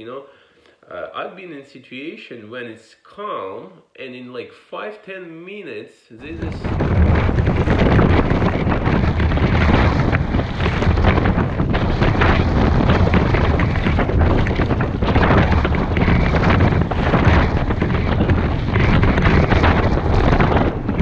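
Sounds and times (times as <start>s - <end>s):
wind buffeting microphone: 6.2s - 21.0s.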